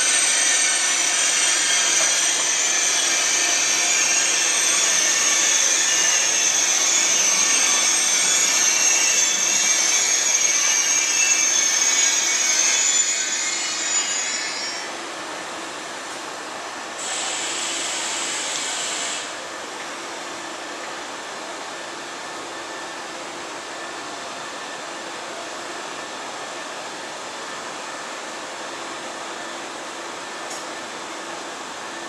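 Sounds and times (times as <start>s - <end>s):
electric train rumbling over points: 0.0s - 9.1s.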